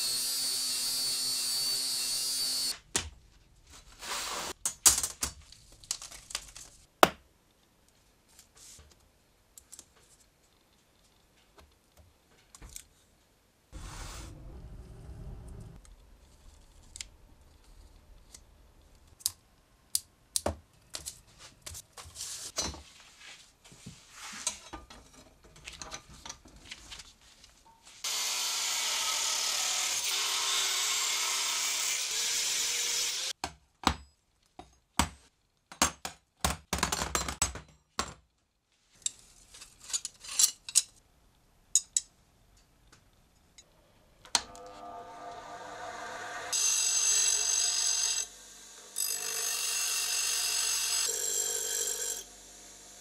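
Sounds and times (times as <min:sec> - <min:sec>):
angle grinder cutting steel: 0:00.0 - 0:02.8, 0:28.0 - 0:33.3, 0:44.4 - 0:53.0.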